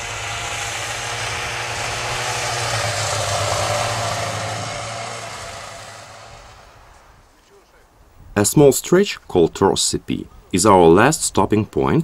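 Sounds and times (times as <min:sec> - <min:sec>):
snowmobile engine passing: 0:00.0 - 0:07.1.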